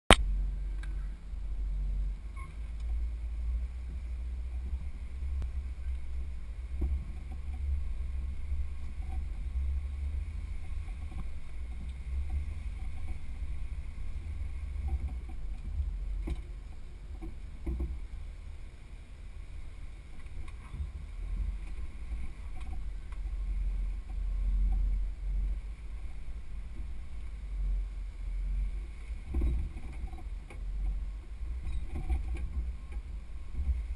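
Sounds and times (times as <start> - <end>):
vehicle rumbling over rock: 0.1 - 33.9
knocks and clunks: 6.7 - 7.8, 14.7 - 18.1.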